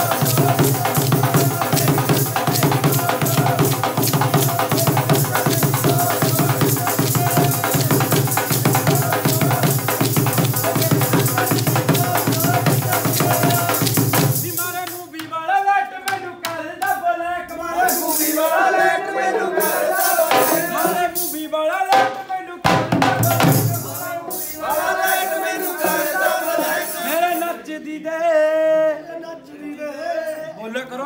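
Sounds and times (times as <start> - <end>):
drum beating loudly: 0.0 - 15.0, 19.6 - 21.2, 21.9 - 24.4
man singing: 0.0 - 18.6, 19.3 - 31.0.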